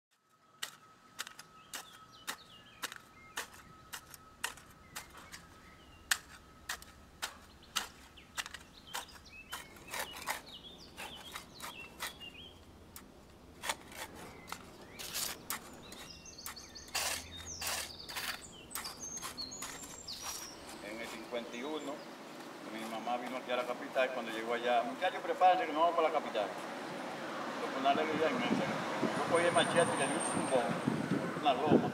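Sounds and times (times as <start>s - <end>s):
birds chirping: 0.1s - 31.9s
machete chopping grass and soil: 0.6s - 5.5s, 6.1s - 12.3s, 13.0s - 21.2s.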